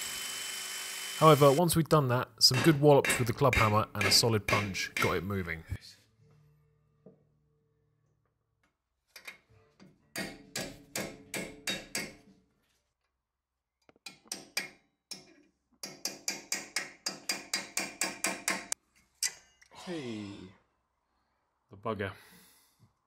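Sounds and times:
hammer striking steel punch: 2.5 - 5.2, 10.2 - 12.2.

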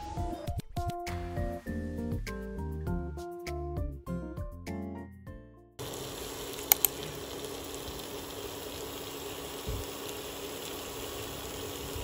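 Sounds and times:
meat sizzling on a grill pan: 5.8 - 12.0.

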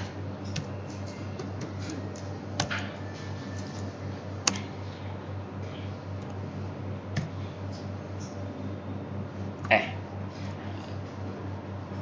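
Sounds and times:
low electrical hum: 0.0 - 12.0
computer keyboard keystrokes: 4.4 - 4.7.

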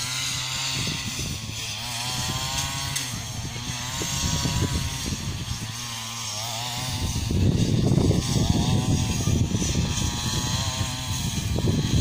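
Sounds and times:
distant brush cutter cutting grass: 0.0 - 12.0.

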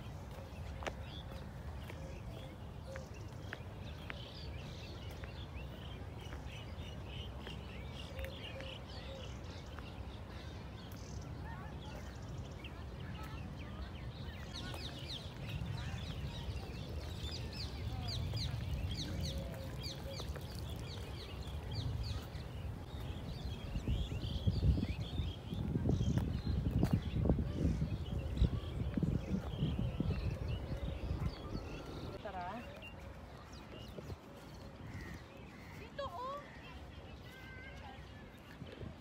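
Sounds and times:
small birds chirping: 0.0 - 39.0
wind rumble on microphone: 11.1 - 35.2.

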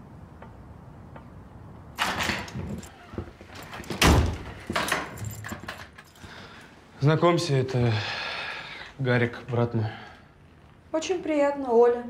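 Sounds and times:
door opening: 2.0 - 6.1
door shutting with heavy thud: 3.6 - 5.7.

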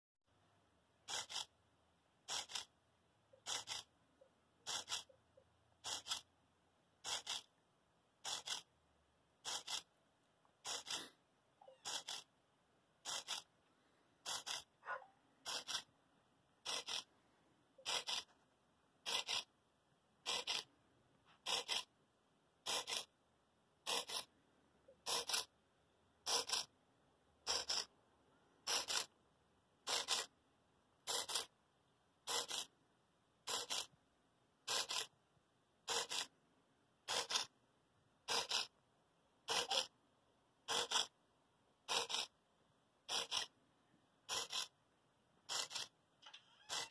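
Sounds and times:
servo motor whirring: 10.7 - 11.1, 11.8 - 12.3, 14.3 - 14.6, 16.6 - 17.1, 20.3 - 20.7.

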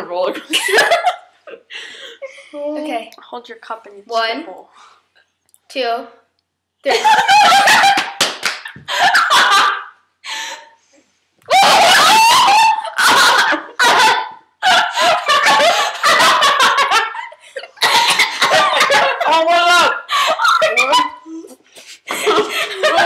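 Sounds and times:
women coughing and gagging: 17.6 - 19.4.

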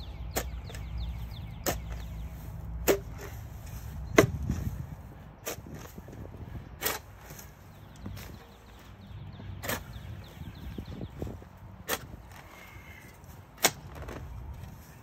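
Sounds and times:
shovel cutting into soil: 6.8 - 8.4, 11.8 - 12.8, 13.6 - 14.2.

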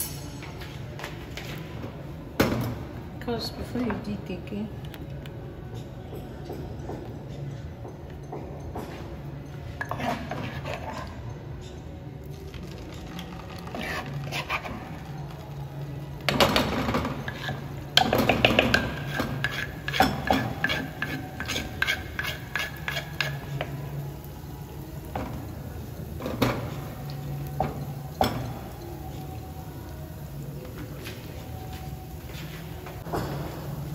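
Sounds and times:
metal spoon scraping clay mortar: 9.8 - 11.2, 13.5 - 15.0, 18.6 - 23.7
batter sizzling in hot oil: 16.3 - 33.9.

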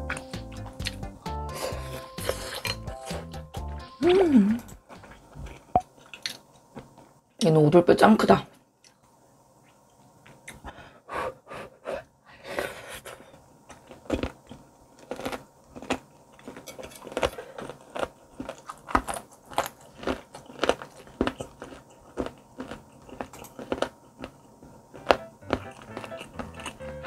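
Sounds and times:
person crunching cartilage: 15.0 - 27.0.

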